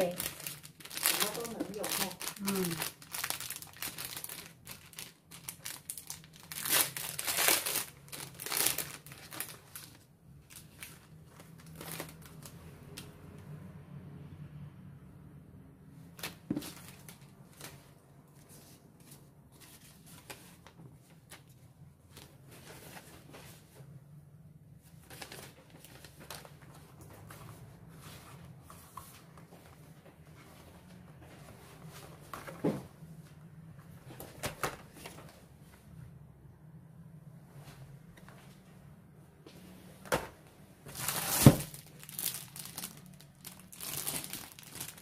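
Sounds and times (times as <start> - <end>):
paper and cardboard boxes rustling: 40.9 - 45.0.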